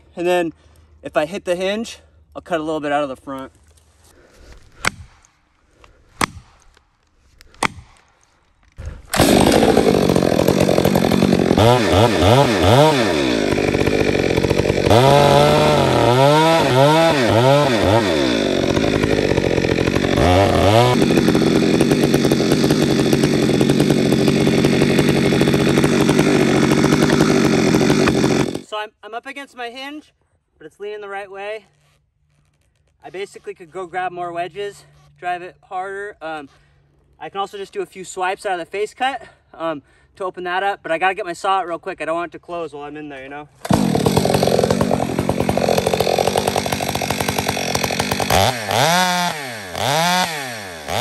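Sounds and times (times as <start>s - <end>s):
chainsaw cutting at full throttle: 8.8s - 28.7s, 43.6s - 51.0s.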